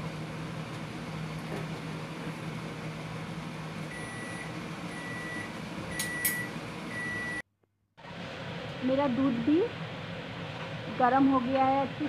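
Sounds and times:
microwave oven humming: 0:00.0 - 0:12.0
microwave long beeps: 0:03.9 - 0:07.5.

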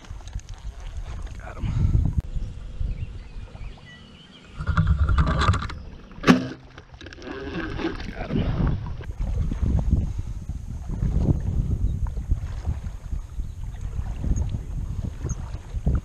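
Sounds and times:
water sloshing and splashing: 0:00.0 - 0:01.6, 0:04.5 - 0:10.0, 0:10.8 - 0:16.0
bow shot snap and twang: 0:04.7 - 0:06.8.

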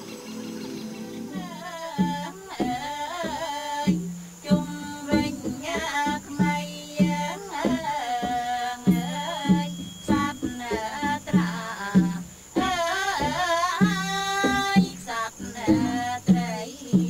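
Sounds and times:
high wavering ornamented melody: 0:00.0 - 0:01.6
sharp percussion strikes: 0:00.0 - 0:15.0.

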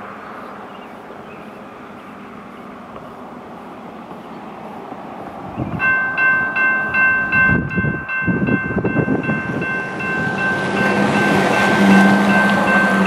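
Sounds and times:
train engine and wheels rumbling: 0:00.0 - 0:13.0
warning bell dinging: 0:05.8 - 0:13.0.

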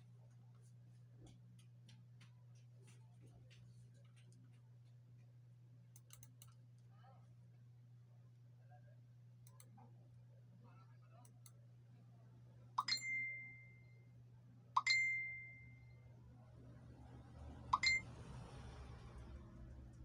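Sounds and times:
low steady hum: 0:00.0 - 0:20.0
electronic dings: 0:12.8 - 0:13.9, 0:14.8 - 0:16.0, 0:17.8 - 0:18.1.

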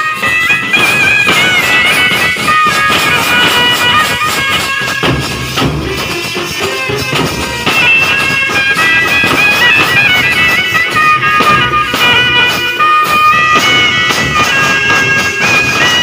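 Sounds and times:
bass and side drums beating: 0:00.0 - 0:16.0
wind instrument melody: 0:00.0 - 0:16.0.

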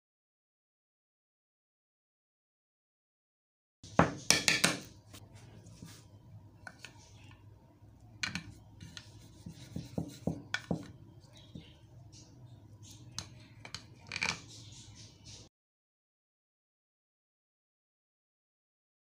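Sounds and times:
spoon scraping and tapping a dish: 0:08.2 - 0:11.8, 0:12.8 - 0:14.6.

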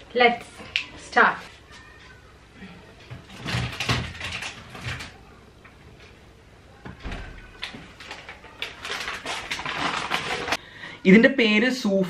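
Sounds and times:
items knocking inside refrigerator: 0:03.1 - 0:05.2
refrigerator door closing thump: 0:06.9 - 0:07.5.

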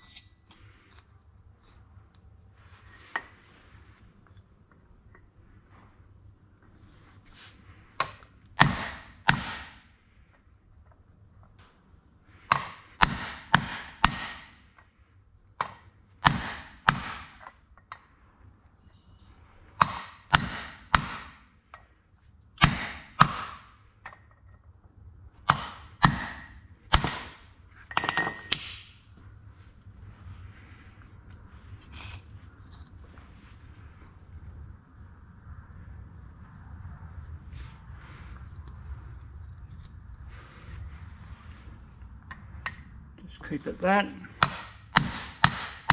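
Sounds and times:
hammer striking metal pipe: 0:08.0 - 0:09.8, 0:12.5 - 0:14.6, 0:19.8 - 0:21.4, 0:25.5 - 0:28.9, 0:44.4 - 0:45.9.

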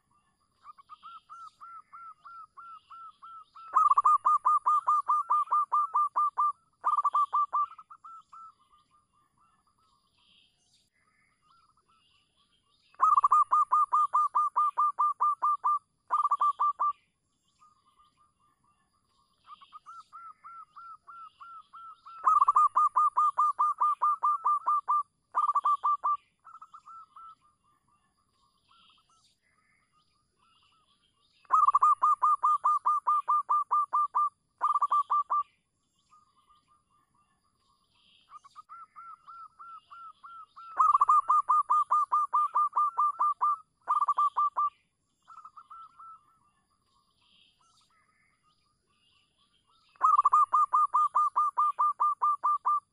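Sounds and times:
dove staccato cooing: 0:03.7 - 0:08.2, 0:13.0 - 0:16.9, 0:22.2 - 0:26.8, 0:31.5 - 0:35.4, 0:40.7 - 0:44.7, 0:50.0 - 0:52.8.

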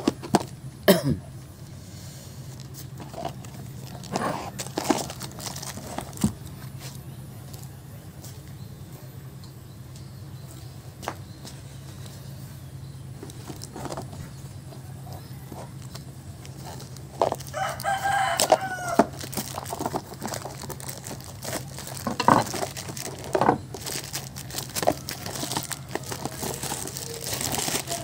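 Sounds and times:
rooster crowing: 0:17.4 - 0:19.3, 0:24.8 - 0:28.0
hand tools clattering on wooden bench: 0:22.0 - 0:22.6.

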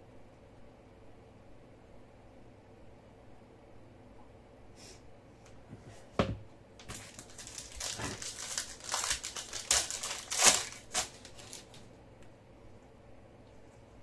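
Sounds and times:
foil wrapper tearing and crinkling: 0:06.8 - 0:11.9.

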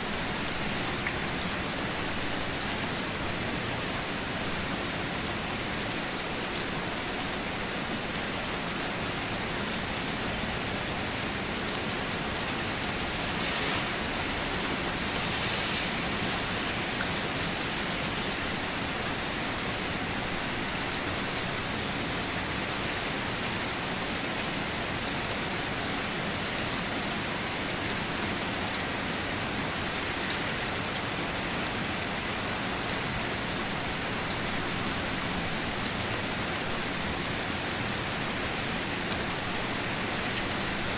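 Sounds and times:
rain falling on water: 0:00.0 - 0:40.9.

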